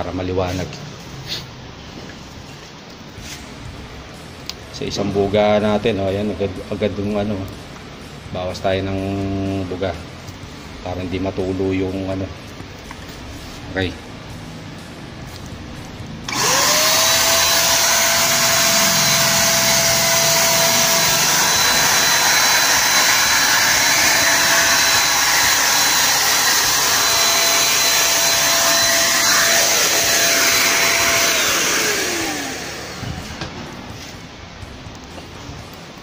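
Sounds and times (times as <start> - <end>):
electric spray gun motor whining: 16.3 - 33.5.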